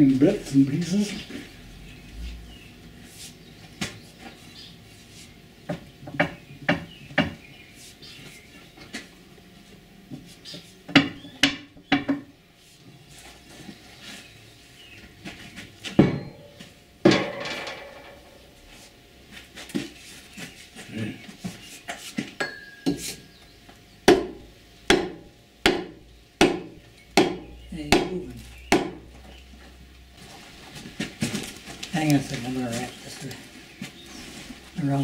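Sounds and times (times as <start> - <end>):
hammer clanking on metal: 16.0 - 18.3.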